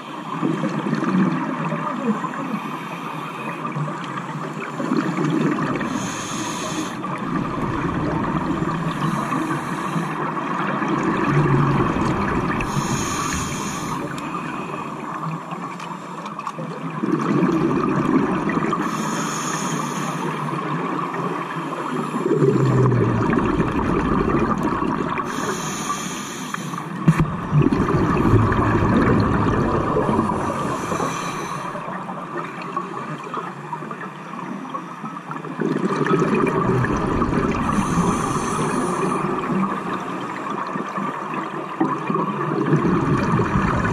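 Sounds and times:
exhaled bubbles rumbling: 0.0 - 2.1, 3.8 - 6.2, 6.9 - 15.7, 16.6 - 19.0, 22.2 - 25.5, 26.9 - 34.0, 35.3 - 43.9
regulator inhale hiss: 2.5 - 3.6, 5.8 - 7.2, 8.8 - 10.4, 12.6 - 15.1, 18.8 - 20.5, 25.2 - 27.2, 30.2 - 32.0, 37.6 - 39.9.

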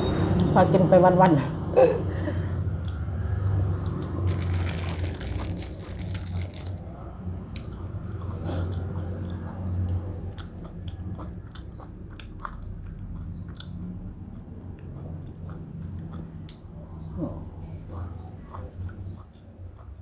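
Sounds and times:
person chewing food: 3.8 - 6.8, 7.5 - 16.7, 17.8 - 20.0.

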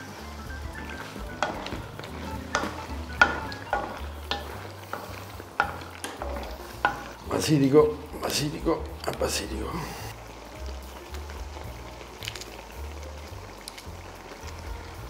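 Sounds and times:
sauce sizzling in frying pan: 0.0 - 15.0
wooden spoon knocking pan: 0.5 - 8.8.

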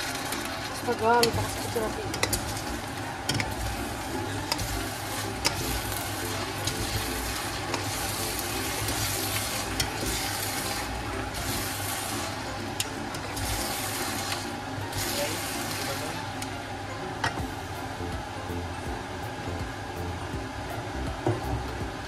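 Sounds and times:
utensils clicking against pan: 0.0 - 16.5
noodles sizzling in a frying pan: 0.0 - 22.0.

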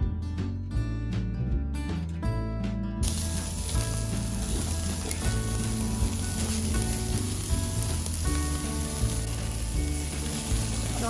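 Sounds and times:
background music: 0.0 - 11.0
meat sizzling on a grill: 3.0 - 11.0.

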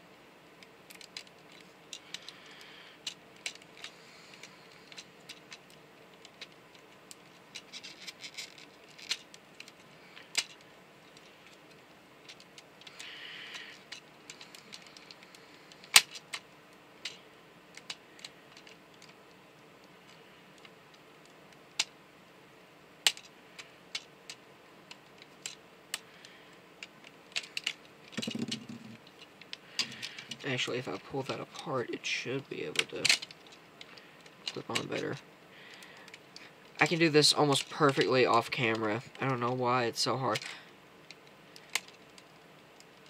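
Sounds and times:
plastic parts clicking: 0.9 - 16.4, 17.0 - 19.2, 23.0 - 31.0, 32.3 - 39.5, 40.3 - 43.0.

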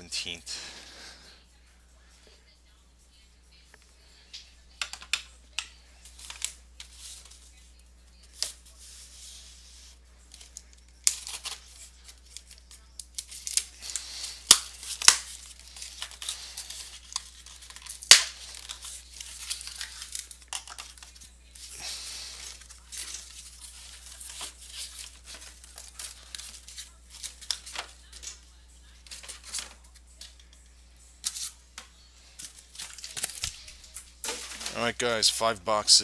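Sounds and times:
tape tearing: 10.4 - 21.2, 31.2 - 31.6, 32.4 - 34.9.

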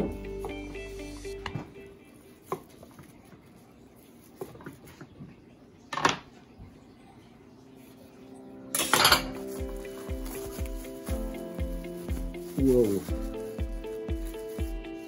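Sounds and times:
plastic film handling noise: 8.8 - 15.0.

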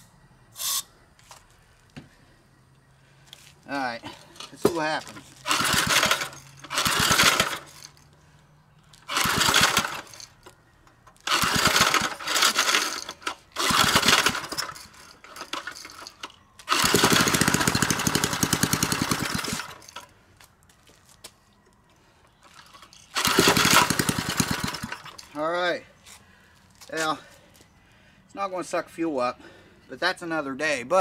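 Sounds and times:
engine pull-start: 5.4 - 8.0, 9.0 - 10.6, 11.2 - 20.1, 22.7 - 25.4.

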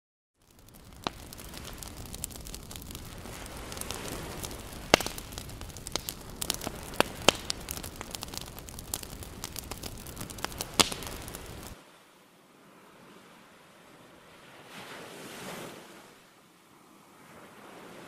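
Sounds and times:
fire crackling and popping: 0.4 - 11.8.

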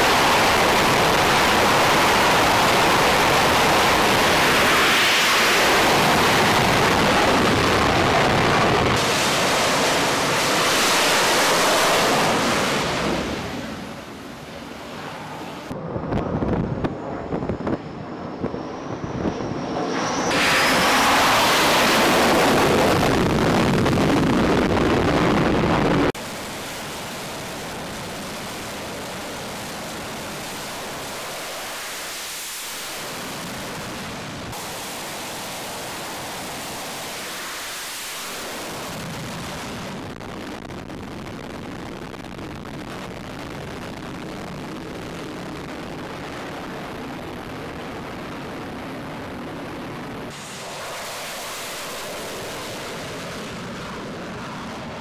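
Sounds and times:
loud jet roar: 0.0 - 40.2, 45.3 - 55.0
jet engine whine: 0.0 - 55.0
steady jet engine noise: 0.0 - 55.0.

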